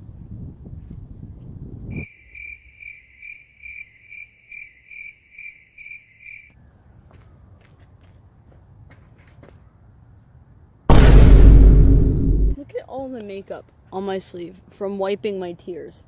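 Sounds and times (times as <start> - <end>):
cricket chirping: 1.9 - 6.5.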